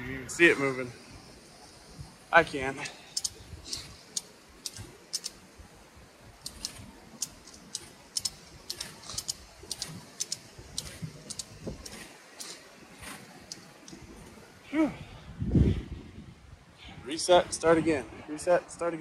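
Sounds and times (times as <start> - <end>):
ratchet strap clicking: 3.1 - 5.5, 6.4 - 14.1.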